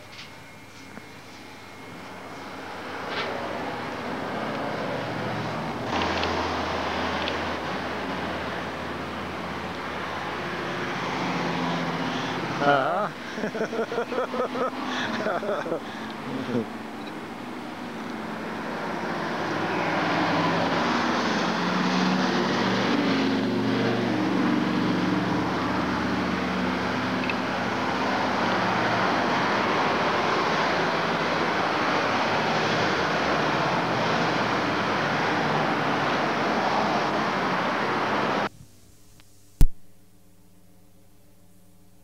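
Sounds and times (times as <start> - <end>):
road traffic noise: 0.0 - 38.6
vehicle engine passing: 1.6 - 38.5.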